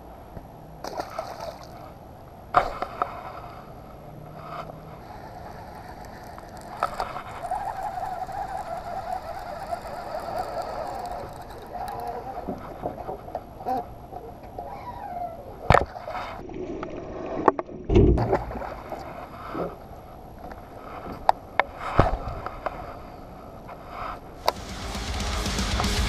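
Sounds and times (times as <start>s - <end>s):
fishing reel cranked whirring: 4.9s - 12.8s.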